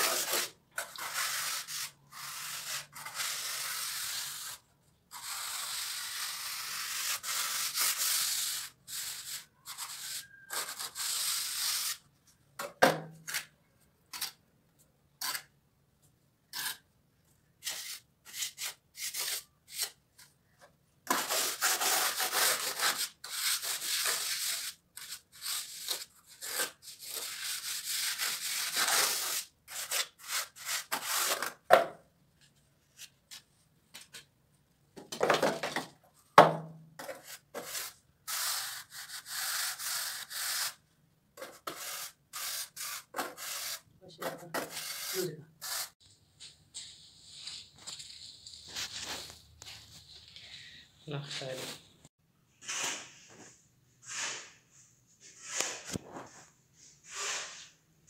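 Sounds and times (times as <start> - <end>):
tool scraping wet plaster: 0.0 - 12.1, 15.2 - 15.5, 16.5 - 16.9, 17.6 - 20.3, 21.0 - 31.7, 37.0 - 40.8, 41.4 - 46.0.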